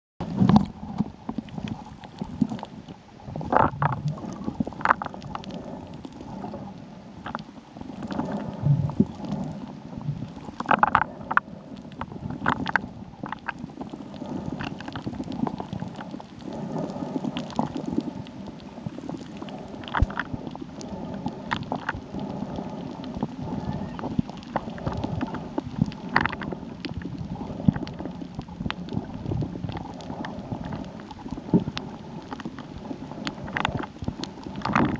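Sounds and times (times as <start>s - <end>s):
muffled underwater rumble: 0.2s - 34.9s.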